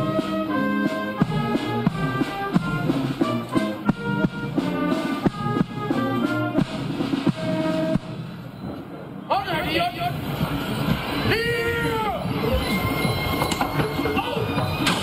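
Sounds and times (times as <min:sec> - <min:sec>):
brass band playing held notes: 0:00.0 - 0:08.5
drum strokes: 0:00.0 - 0:11.3.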